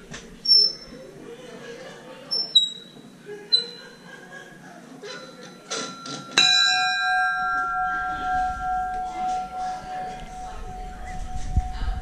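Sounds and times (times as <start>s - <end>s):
bell ringing: 5.8s - 12.0s.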